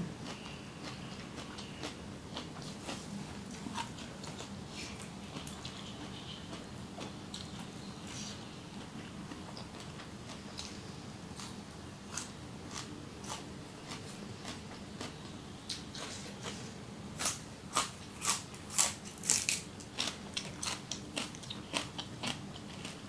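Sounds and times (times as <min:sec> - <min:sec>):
crisp crunching of green onion: 0:17.2 - 0:23.0.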